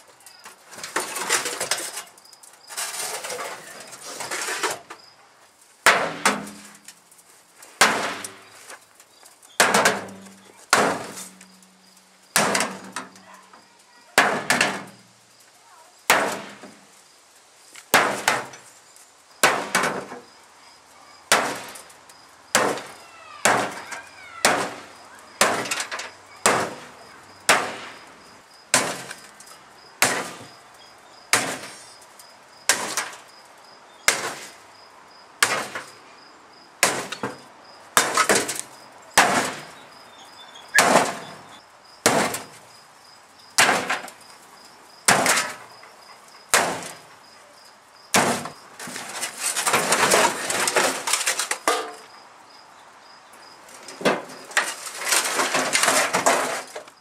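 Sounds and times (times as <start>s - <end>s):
sledgehammer hitting sheet metal: 5.9s - 6.8s, 7.8s - 8.5s, 9.6s - 11.5s, 12.4s - 13.2s, 14.2s - 15.0s, 16.1s - 16.8s, 19.4s - 20.1s, 21.3s - 21.8s, 22.6s - 28.0s, 28.7s - 29.2s, 30.0s - 30.5s, 31.3s - 31.8s, 34.1s - 34.5s, 39.2s - 39.7s, 40.8s - 41.4s, 42.0s - 42.5s, 43.6s - 44.1s, 45.1s - 45.6s, 46.5s - 47.0s, 48.2s - 51.0s.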